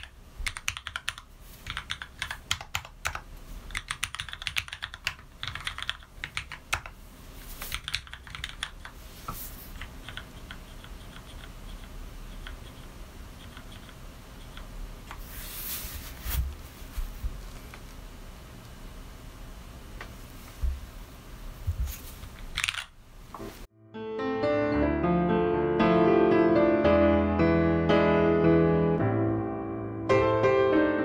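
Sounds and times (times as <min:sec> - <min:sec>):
mechanical keyboard typing: 0:00.0 - 0:07.0, 0:07.6 - 0:09.0, 0:09.7 - 0:14.7, 0:22.4 - 0:22.9.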